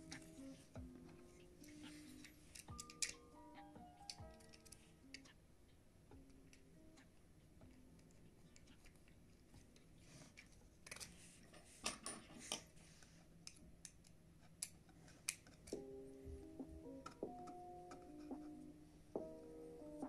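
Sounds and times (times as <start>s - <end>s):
hex key clicking on plastic: 2.5s - 3.2s.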